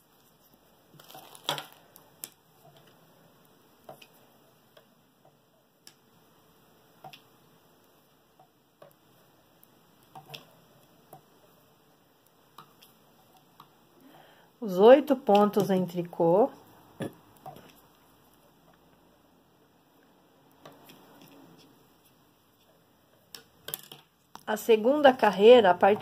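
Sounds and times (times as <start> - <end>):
knitting needles clicking: 7.0 - 7.3, 8.4 - 11.3, 15.2 - 16.0.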